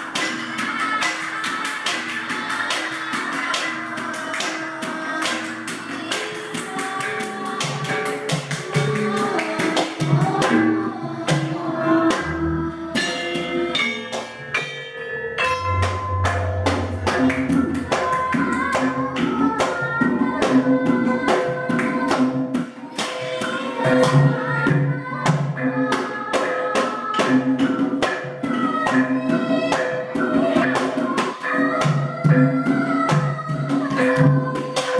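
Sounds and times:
kendang drumming: 0.0s - 34.9s
gamelan ensemble playing: 10.2s - 33.1s.

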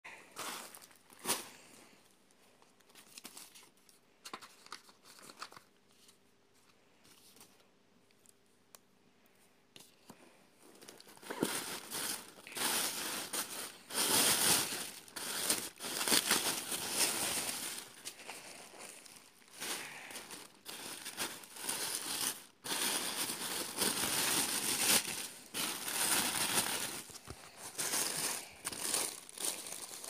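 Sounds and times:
paper wrapping rustling: 0.4s - 1.6s, 2.6s - 6.2s, 10.6s - 30.0s
paper crinkling and tearing: 2.9s - 6.2s, 10.8s - 30.0s.

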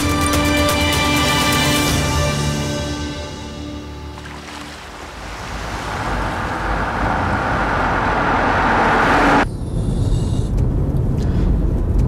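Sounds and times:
car engine and tyre noise: 4.1s - 12.0s
low rumble of road noise: 4.1s - 12.0s.

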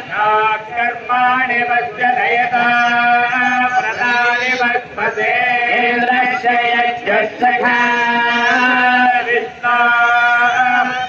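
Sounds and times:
man chanting through speaker: 0.0s - 11.0s.

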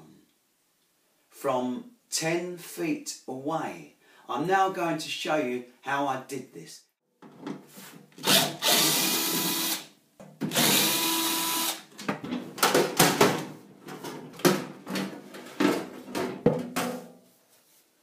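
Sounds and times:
power drill whining: 8.2s - 9.8s, 10.5s - 11.8s
sheet metal cover rattling: 12.2s - 17.2s.

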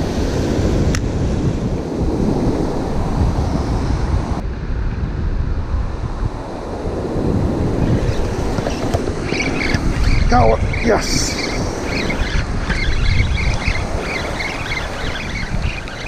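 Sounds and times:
ocean surf washing in: 0.0s - 16.0s
wind rumbling on microphone: 0.0s - 16.0s.

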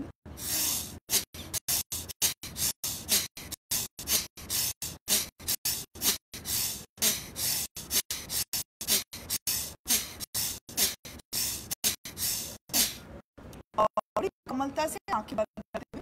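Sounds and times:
person breathing forcefully: 0.3s - 13.1s.

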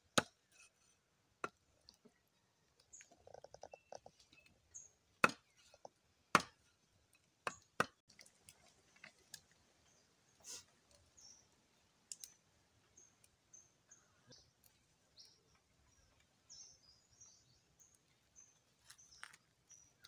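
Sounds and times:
knife chopping on wood: 5.2s - 5.6s, 6.3s - 6.6s, 7.4s - 8.0s.

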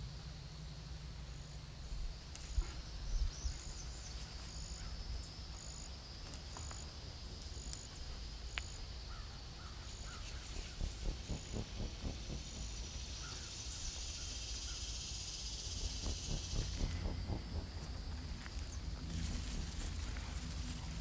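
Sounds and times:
bird calls: 9.1s - 19.3s
low rumble: 10.2s - 21.0s.

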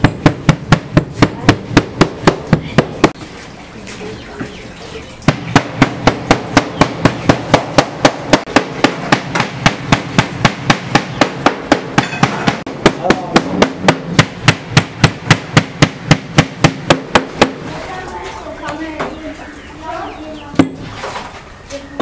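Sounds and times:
knife chopping meat on wood: 5.3s - 17.6s.

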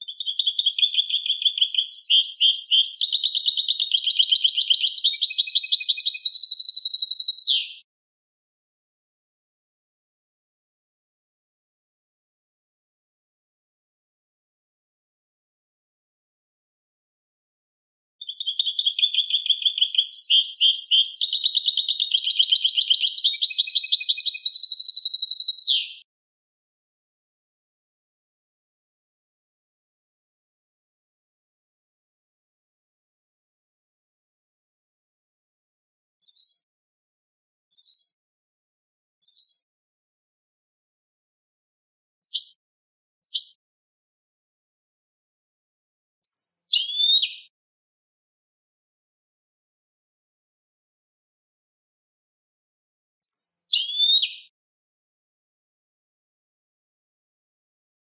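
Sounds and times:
goldfinch singing: 0.1s - 7.8s, 18.2s - 26.0s, 36.2s - 36.6s, 37.8s - 38.2s, 39.2s - 39.6s, 42.2s - 42.6s, 43.2s - 43.6s, 46.2s - 47.5s, 53.2s - 54.5s.

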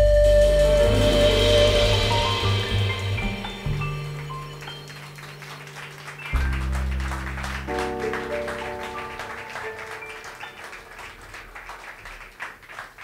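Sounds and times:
double bass note: 0.0s - 4.6s, 6.3s - 7.7s
keyboard chord ringing: 0.7s - 11.2s
audience applauding: 2.4s - 13.0s.

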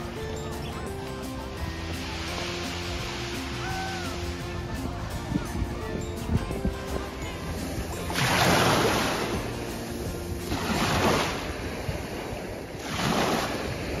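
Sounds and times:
faint music: 0.0s - 12.8s
small waves washing over sand: 1.6s - 5.2s, 6.8s - 14.0s.

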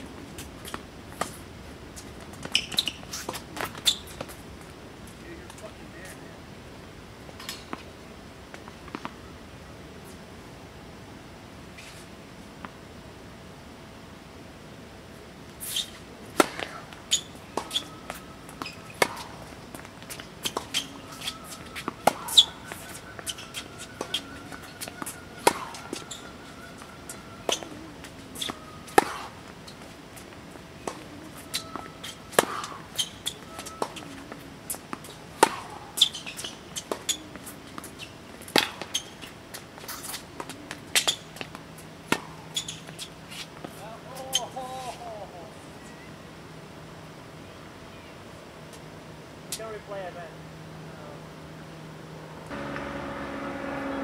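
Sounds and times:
tennis ball hit by racket: 16.4s - 16.8s, 20.1s - 26.0s, 28.4s - 29.4s, 30.8s - 32.8s, 35.0s - 36.2s.

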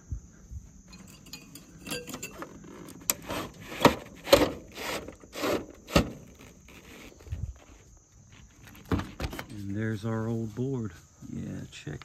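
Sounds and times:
metal clicks and scraping: 0.9s - 7.2s.

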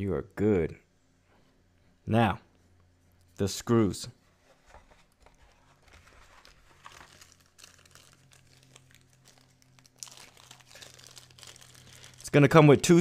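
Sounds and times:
plastic bag crinkling: 5.0s - 12.8s.

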